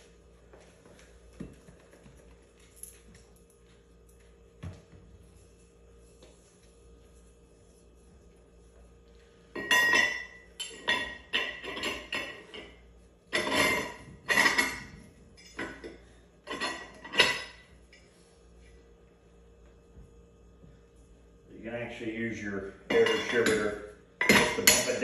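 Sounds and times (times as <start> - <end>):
metallic clinks and scrapes: 22.9 - 25.0.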